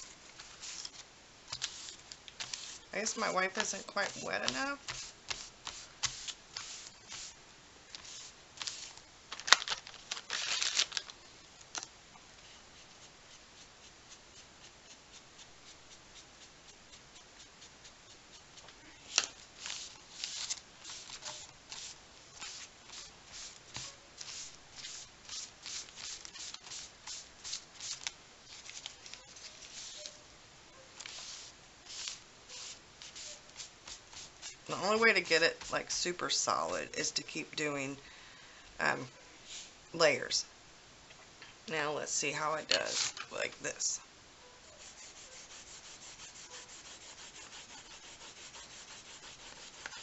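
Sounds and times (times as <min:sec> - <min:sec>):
wipe rubbing on paper: 0:01.6 - 0:07.4, 0:44.8 - 0:50.0.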